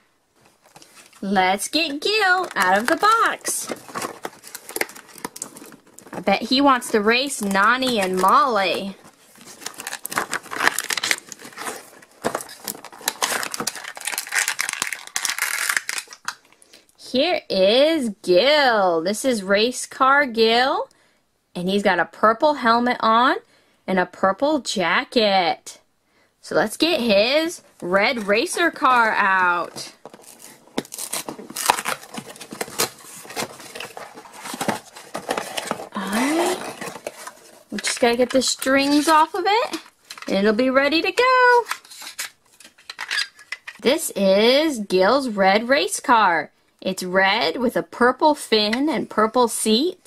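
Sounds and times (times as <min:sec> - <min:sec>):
plastic packaging crinkling: 0:00.4 - 0:16.6, 0:28.0 - 0:40.3, 0:41.6 - 0:43.8
cardboard box rustling: 0:00.5 - 0:15.3, 0:27.9 - 0:39.3.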